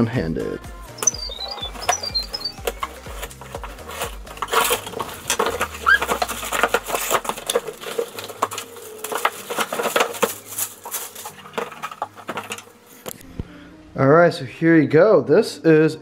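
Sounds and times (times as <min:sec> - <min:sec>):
short rising squeak: 0:01.0 - 0:02.7
packaging crinkling and tearing: 0:02.6 - 0:13.2.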